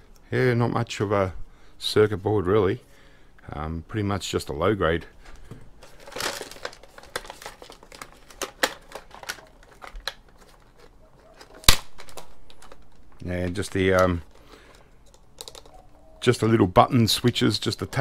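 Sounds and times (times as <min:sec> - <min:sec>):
plastic parts clicking and crinkling: 0:05.2 - 0:16.0
sharp plastic snap: 0:11.6 - 0:12.7.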